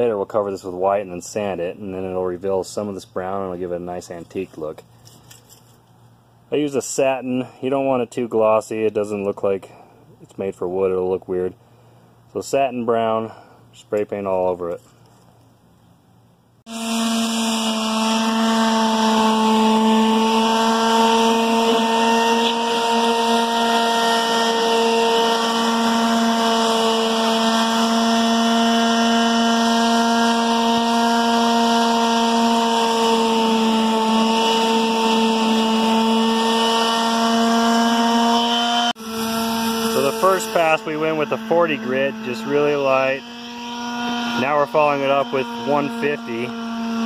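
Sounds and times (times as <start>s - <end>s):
palm sander sanding wood: 16.7s - 47.0s.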